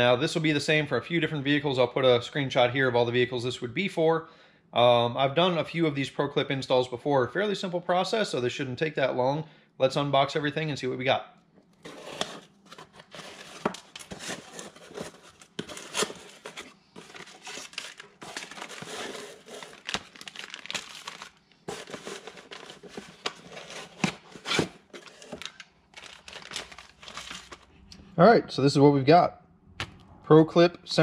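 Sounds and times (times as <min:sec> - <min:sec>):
cardboard box tearing: 0:11.8 - 0:27.6
cardboard rustling: 0:11.8 - 0:27.7
plastic crinkling: 0:11.8 - 0:27.7.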